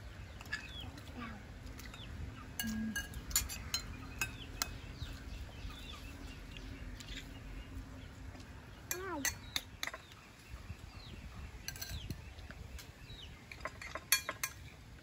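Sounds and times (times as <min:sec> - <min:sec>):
birds chirping: 0:00.0 - 0:15.0
kitchenware clinking: 0:02.6 - 0:04.4, 0:13.5 - 0:14.6.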